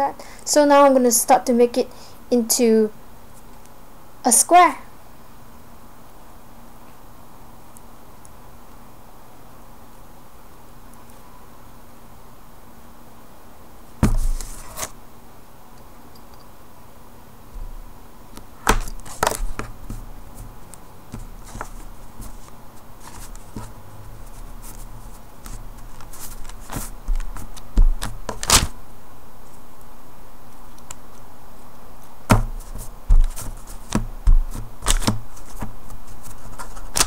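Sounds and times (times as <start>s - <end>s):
soft handling rustles: 18.8s - 28.4s, 32.4s - 36.9s
sharp knocks and taps on table: 32.3s - 35.2s.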